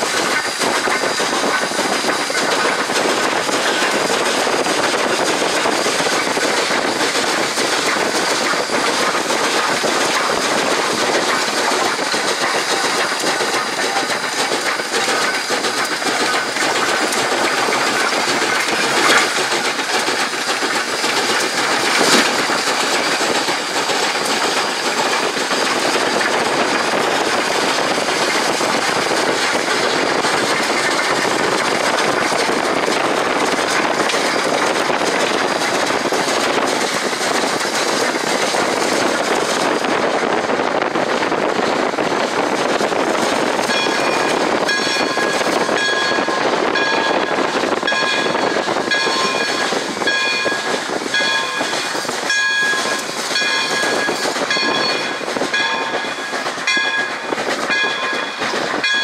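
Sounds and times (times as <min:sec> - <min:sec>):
steam locomotive running hard: 0:00.0 - 0:59.0
short high ringing tones: 0:43.7 - 0:59.0.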